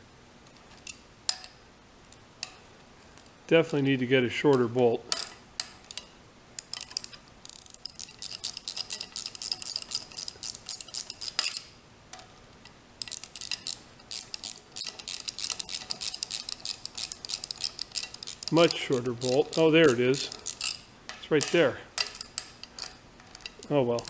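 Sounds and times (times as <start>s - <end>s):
ratchet wrench clicking: 5.6s - 11.7s, 13.0s - 24.0s.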